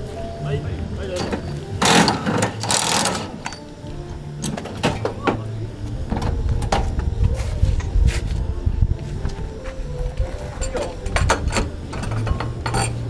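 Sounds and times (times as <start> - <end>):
impact wrench bursts: 1.8 - 3.6
metallic clicks and knocks: 10.6 - 13.0.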